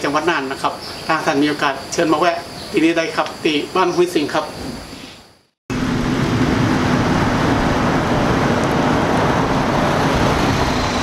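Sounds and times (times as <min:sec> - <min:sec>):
road traffic rush: 0:05.7 - 0:11.0.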